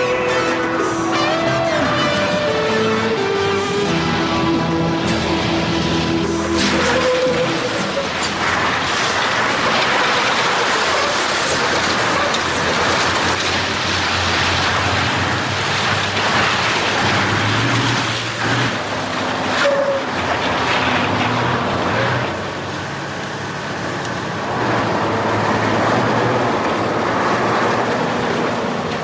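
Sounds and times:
low truck engine note: 0.0s - 10.3s
trucks driving fast: 0.0s - 29.0s.

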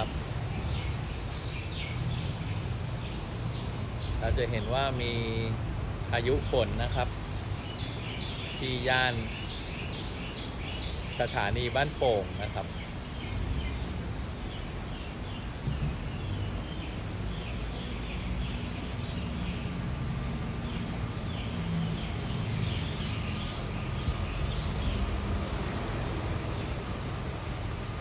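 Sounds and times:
birds chirping faintly: 0.0s - 28.0s
heavy rain: 7.9s - 28.0s.

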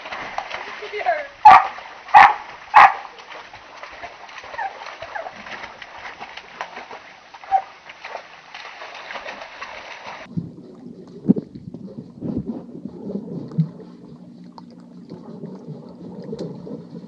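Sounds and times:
dog splashing in water: 0.0s - 17.0s
muffled underwater paddling: 0.0s - 17.0s
underwater bubbling: 10.2s - 17.0s.

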